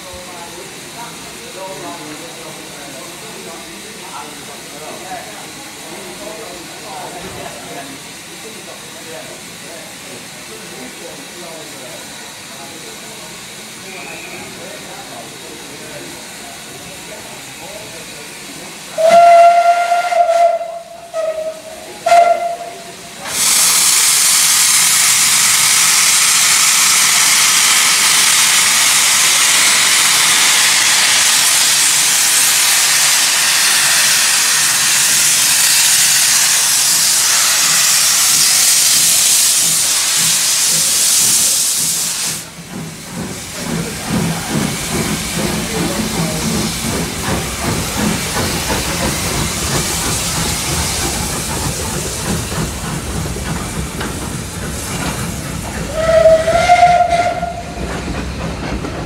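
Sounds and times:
steam locomotive chuffing: 0:00.0 - 0:59.0
steam hissing from drain cocks: 0:11.0 - 0:58.9.

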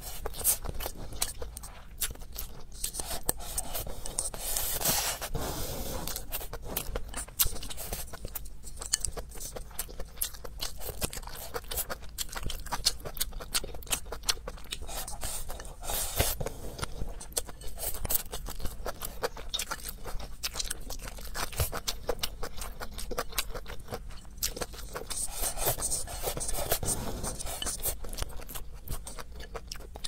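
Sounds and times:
wet chewing and crunching: 0:00.0 - 0:30.0
slurping food: 0:02.8 - 0:08.1, 0:25.0 - 0:28.0.

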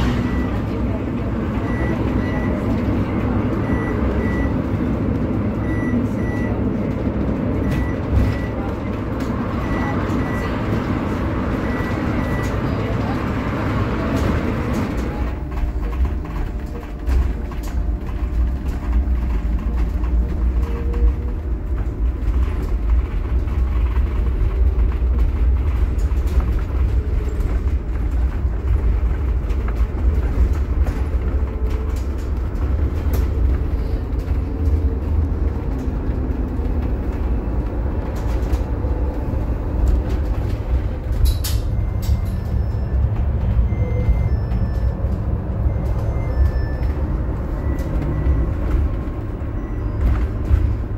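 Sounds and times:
bus tyres rumbling: 0:00.0 - 0:50.9
rattles and clicks: 0:00.0 - 0:50.9.

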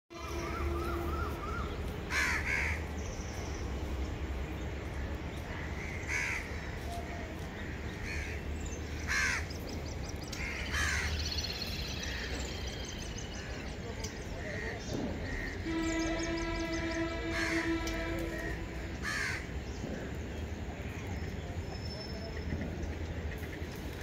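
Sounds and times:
loud bird calls: 0:00.2 - 0:03.9, 0:04.7 - 0:24.0
high chirps of small birds: 0:00.2 - 0:18.4.

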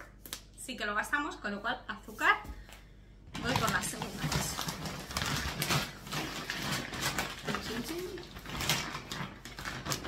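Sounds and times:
plastic bag rustling: 0:03.3 - 0:10.0.

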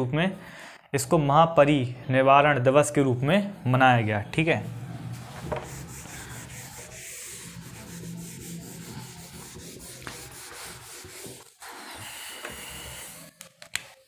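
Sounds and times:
scratchy rubbing: 0:04.4 - 0:11.9.

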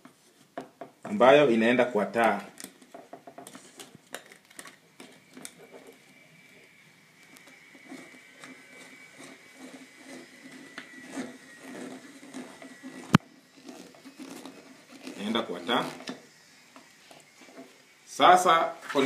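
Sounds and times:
faint thin steady whine: 0:00.0 - 0:19.0
clicks and rustles of wires: 0:02.1 - 0:06.0.

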